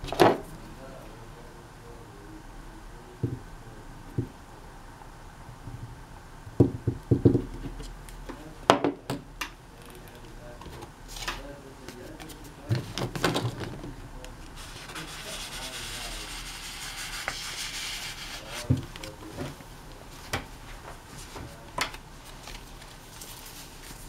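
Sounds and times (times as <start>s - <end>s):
cardboard rasping on paper: 14.6s - 18.7s.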